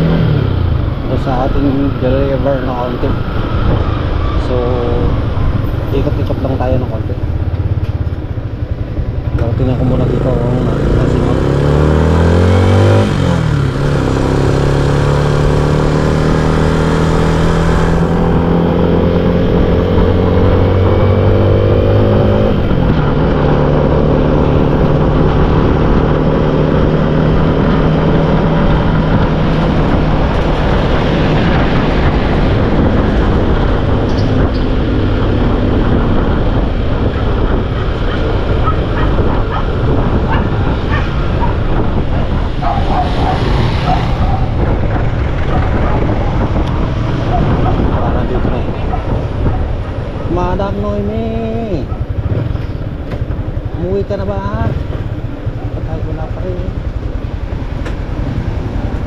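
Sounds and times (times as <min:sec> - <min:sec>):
motorcycle engine revving: 0:00.0 - 0:59.0
wind and road noise: 0:00.0 - 0:59.0.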